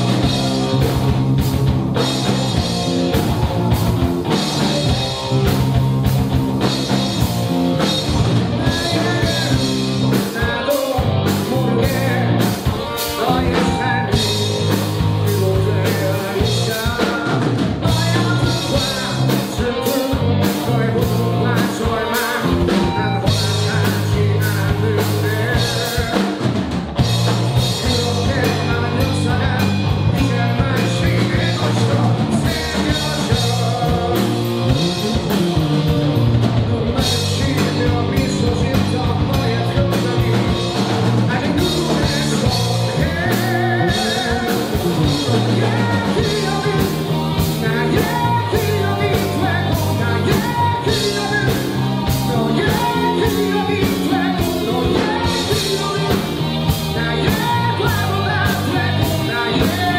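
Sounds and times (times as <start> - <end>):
bass guitar: 0.0 - 59.9
drum kit beat: 0.0 - 59.9
electric guitar: 0.0 - 59.9
man singing: 2.0 - 5.8, 6.6 - 59.9.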